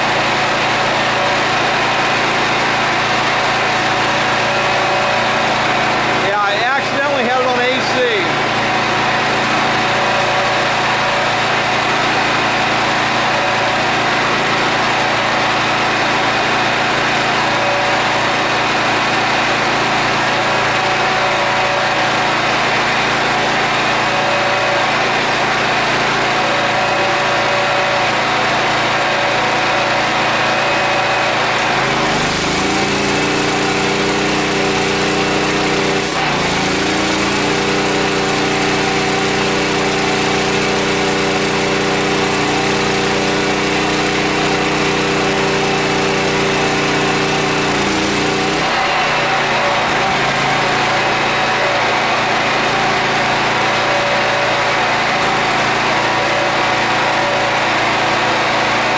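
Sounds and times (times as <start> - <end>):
generator engine running: 0.0 - 58.9.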